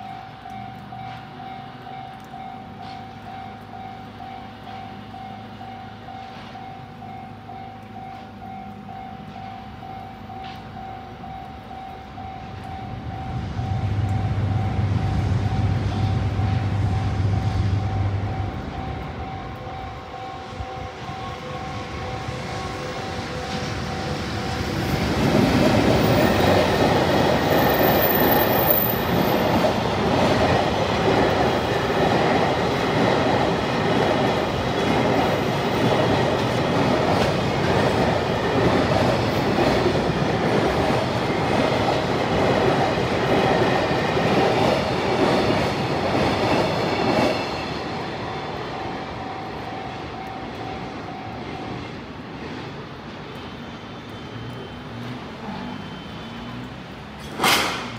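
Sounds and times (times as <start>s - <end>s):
train wheels clacking over rail joints: 57.2s - 57.9s.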